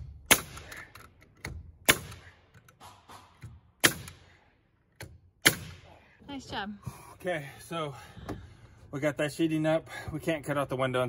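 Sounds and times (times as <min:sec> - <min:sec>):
nail gun firing: 0:00.0 - 0:04.4, 0:05.0 - 0:05.9.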